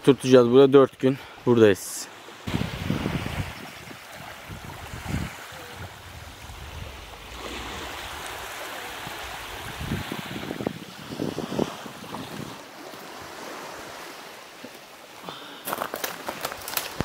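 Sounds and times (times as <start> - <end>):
sea waves washing on beach: 1.8 - 17.0
wind on microphone: 2.5 - 12.6.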